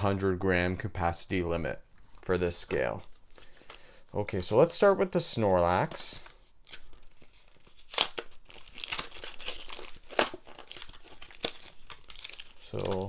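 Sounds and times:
plastic crinkling: 0:06.0 - 0:13.0
cardboard tearing: 0:06.6 - 0:13.0.

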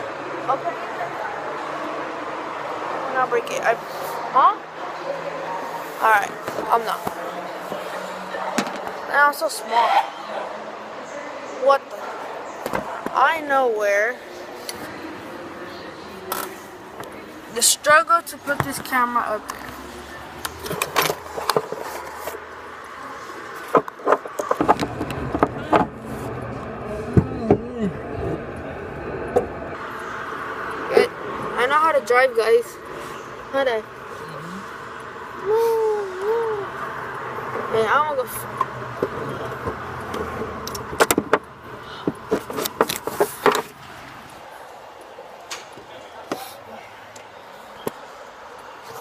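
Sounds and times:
car interior rumble: 0:17.0 - 0:47.4.

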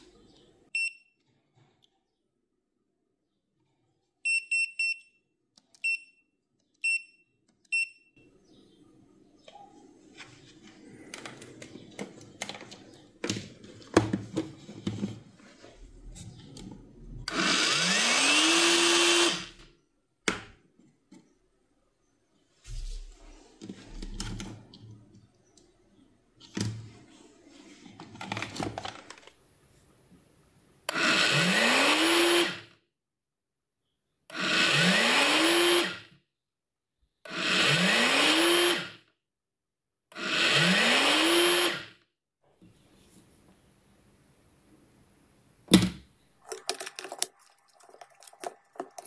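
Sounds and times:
small hard objects clicking and rattling: 0:46.4 - 0:49.0.

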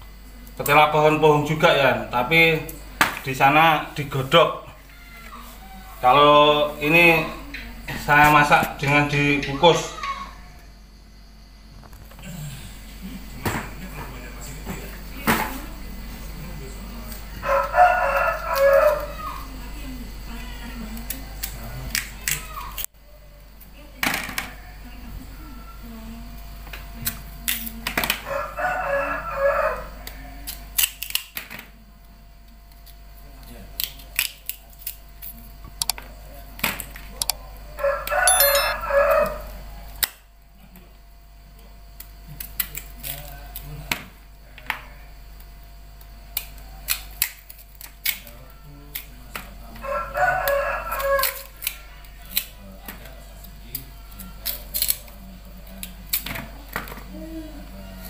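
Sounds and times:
rooster crowing: 0:17.3 - 0:19.4, 0:28.2 - 0:30.4, 0:37.7 - 0:39.6, 0:49.7 - 0:52.1.

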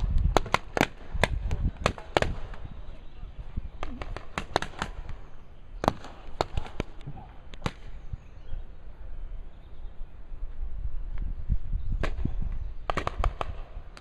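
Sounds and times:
paintball markers firing: 0:00.0 - 0:02.7, 0:03.8 - 0:08.0, 0:12.9 - 0:14.0.

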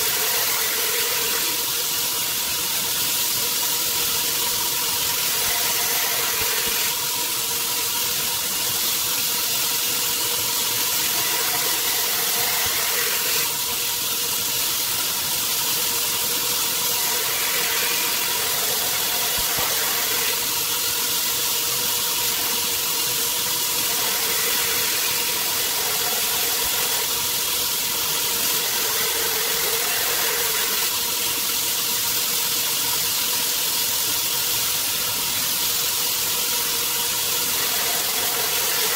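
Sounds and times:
belt grinder motor hum: 0:00.0 - 0:01.6, 0:05.1 - 0:07.0, 0:11.0 - 0:13.5, 0:16.8 - 0:20.6, 0:23.7 - 0:27.4, 0:28.0 - 0:31.0, 0:37.5 - 0:38.9
blade grinding on abrasive belt: 0:00.0 - 0:01.9, 0:05.0 - 0:07.0, 0:10.8 - 0:13.8, 0:16.0 - 0:31.1, 0:37.2 - 0:38.9.

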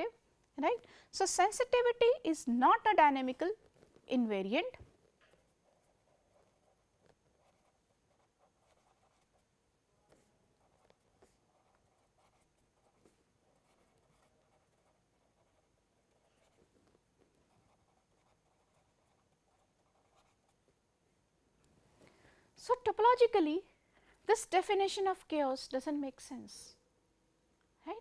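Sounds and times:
pen writing on paper: 0:05.3 - 0:09.5, 0:10.1 - 0:20.6.

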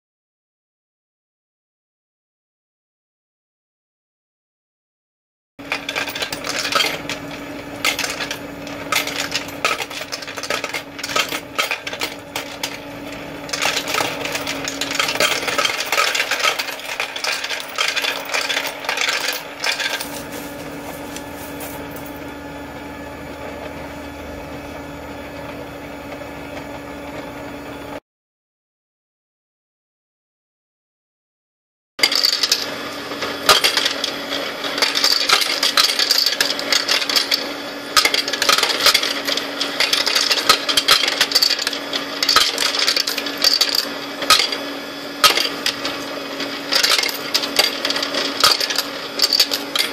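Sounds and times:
coins clattering through sorter: 0:05.6 - 0:22.3, 0:32.0 - 0:49.9
motor hum: 0:05.6 - 0:28.0.

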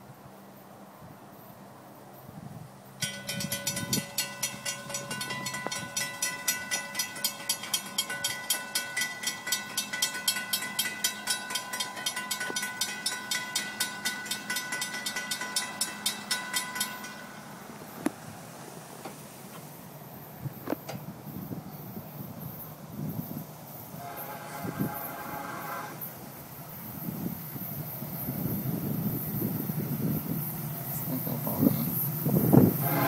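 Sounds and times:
railroad crossing bell ringing: 0:03.0 - 0:18.4, 0:23.9 - 0:33.0.

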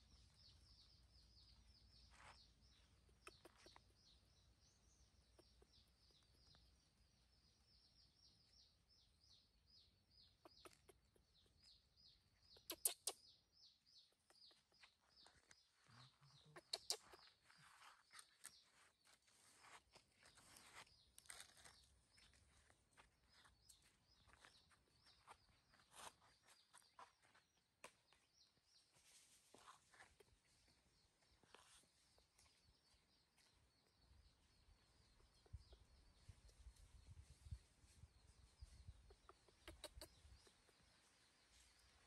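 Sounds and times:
quick high chirps: 0:12.6 - 0:13.2.

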